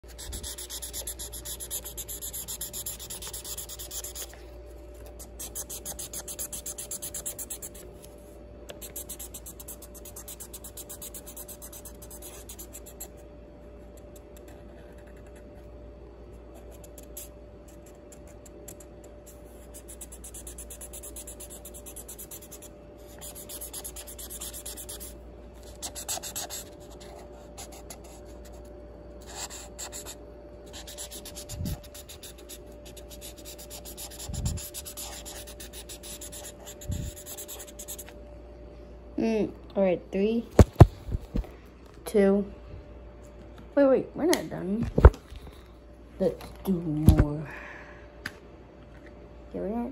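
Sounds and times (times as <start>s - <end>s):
marker rubbing on paper: 0.1s - 4.3s, 5.2s - 7.8s, 19.6s - 25.1s, 25.7s - 28.2s, 30.8s - 38.1s.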